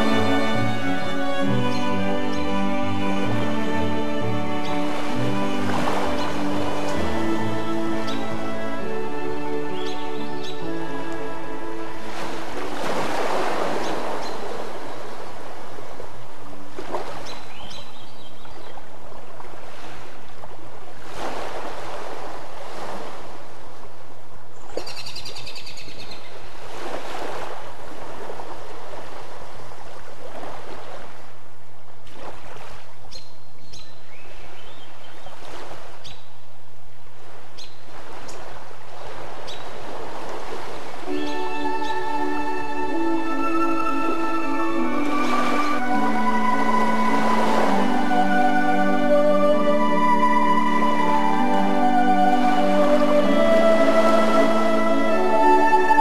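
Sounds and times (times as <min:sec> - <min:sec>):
ocean surf washing in: 0:00.0 - 0:17.6, 0:19.0 - 0:24.4, 0:26.4 - 0:32.9, 0:36.8 - 0:56.0
bird chirps: 0:09.7 - 0:10.7, 0:13.8 - 0:14.5, 0:17.2 - 0:18.8, 0:24.6 - 0:26.4, 0:33.1 - 0:35.4, 0:37.6 - 0:37.8, 0:39.5 - 0:39.7, 0:41.2 - 0:42.2.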